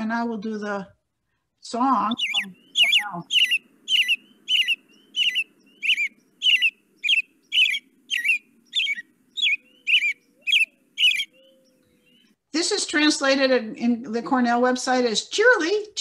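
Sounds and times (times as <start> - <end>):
robin singing: 1.6 - 13.5.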